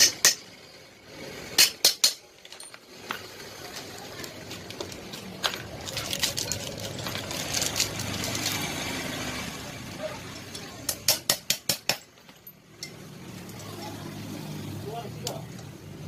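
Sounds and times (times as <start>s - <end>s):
metal parts clinking: 1.6s - 8.7s, 11.8s - 13.8s.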